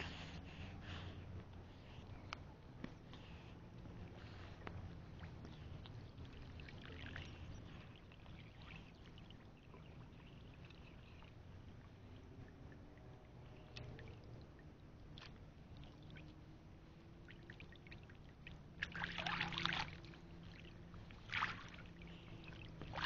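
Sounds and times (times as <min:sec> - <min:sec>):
water sloshing and trickling: 0:03.0 - 0:23.0.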